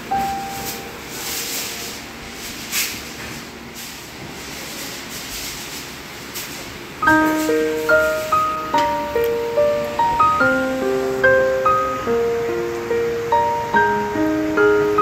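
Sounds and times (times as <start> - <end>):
piano note: 0.0 - 3.8, 7.0 - 15.0
steady hiss: 0.0 - 15.0
soft brushing swishes: 0.2 - 6.6.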